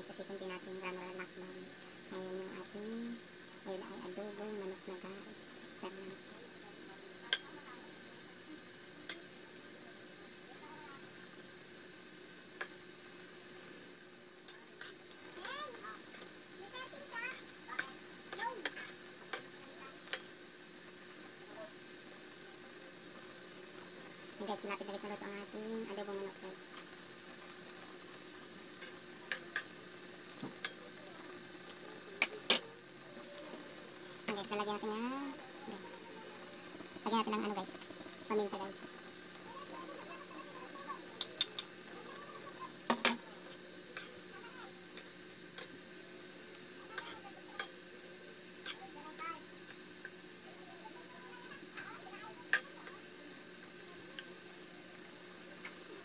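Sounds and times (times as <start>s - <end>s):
sauce simmering hiss: 0.0s - 56.0s
spoon clinking and scraping wok: 28.8s - 29.7s, 42.9s - 44.2s, 47.0s - 47.8s.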